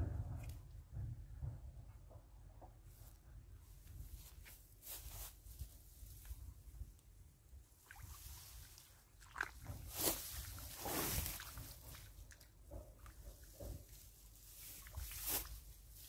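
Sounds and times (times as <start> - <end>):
wind rumble on microphone: 0.0 - 4.3.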